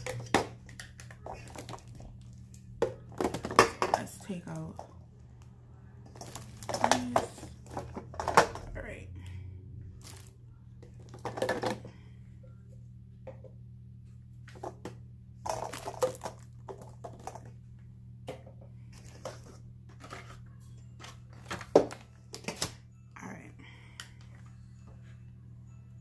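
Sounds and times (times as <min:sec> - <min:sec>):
steady low hum: 0:00.0 - 0:26.0
plastic parts clacking: 0:06.0 - 0:08.8.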